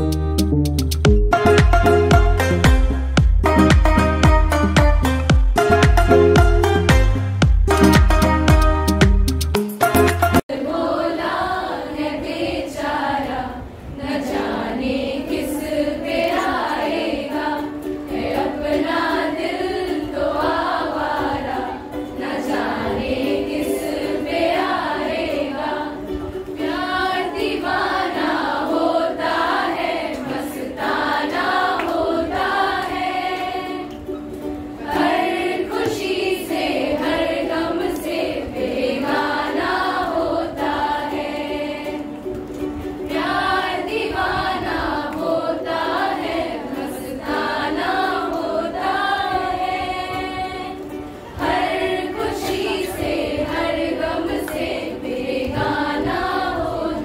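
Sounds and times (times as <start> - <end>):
held instrumental accompaniment: 0.0 - 10.5, 16.1 - 57.0
group of voices singing: 10.4 - 34.0, 34.8 - 42.3, 43.0 - 57.0.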